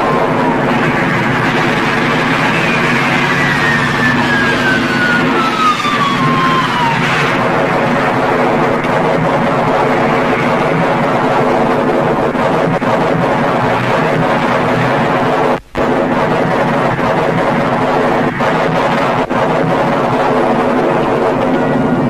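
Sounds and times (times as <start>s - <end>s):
descending whistle: 2.0s - 7.4s.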